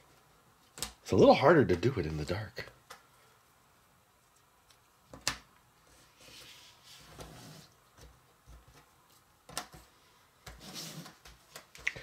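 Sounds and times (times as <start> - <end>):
puzzle pieces rustling and sliding: 5.8 - 8.0.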